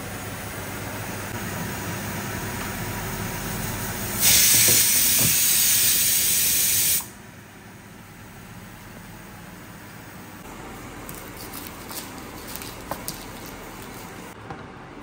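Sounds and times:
steam hissing from pots: 4.1s - 7.1s.

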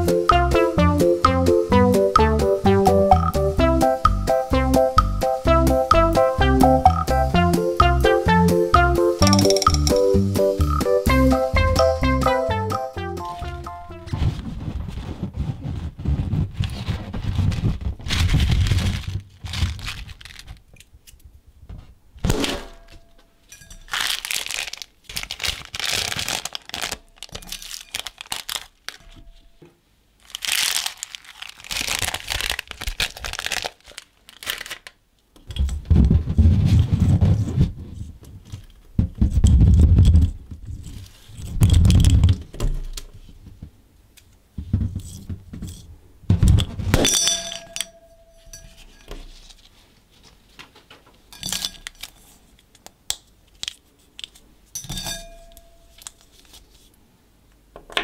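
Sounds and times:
plastic bags crinkling: 16.8s - 20.8s, 23.8s - 29.6s, 30.2s - 35.0s
dull thumps: 35.6s - 38.3s, 44.6s - 47.0s.

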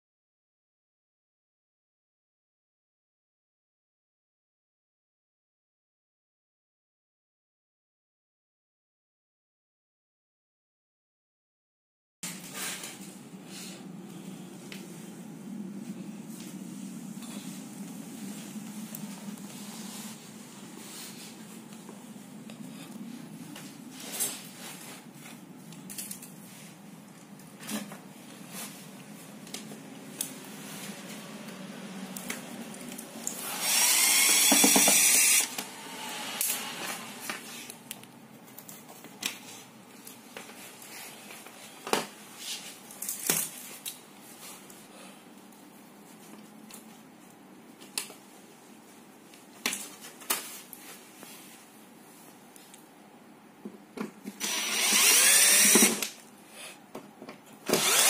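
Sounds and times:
steady low hum: 12.3s - 42.4s.

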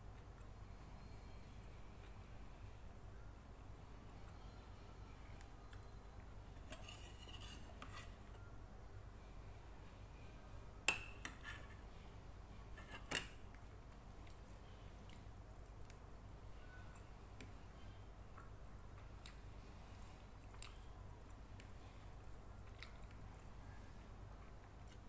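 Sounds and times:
faint rustling of food: 11.3s - 25.0s.

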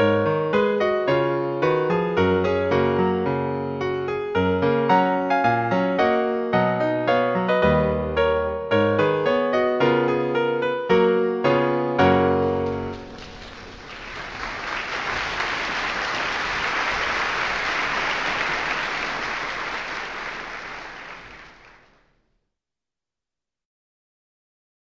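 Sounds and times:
audience applauding: 12.5s - 22.0s.

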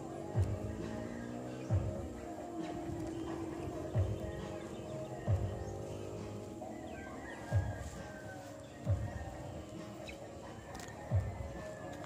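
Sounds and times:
faint background music: 0.0s - 12.0s
dull low thumps: 1.7s - 6.5s.

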